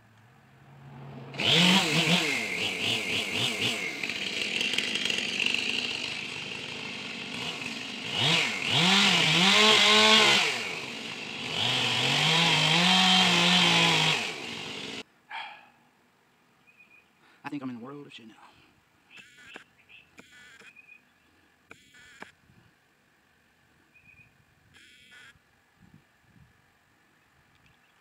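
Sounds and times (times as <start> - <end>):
chainsaw revving and cutting wood: 1.0 - 15.1, 20.2 - 20.7, 21.7 - 22.3.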